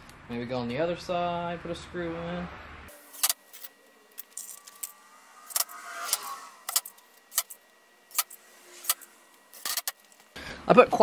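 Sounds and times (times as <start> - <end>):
small metal screws clinking: 2.9 - 10.3.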